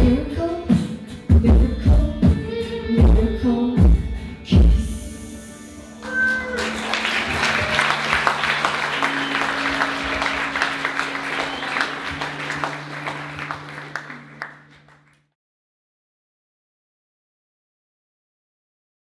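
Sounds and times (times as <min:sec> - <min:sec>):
audience applauding: 0:06.0 - 0:15.3.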